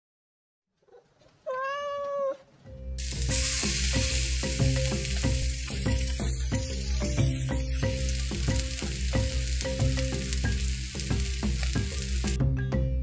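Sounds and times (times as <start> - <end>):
cat meowing: 0.8 - 2.5
chicken sizzling in hot oil: 3.0 - 12.4
music with steady beat: 3.0 - 13.0.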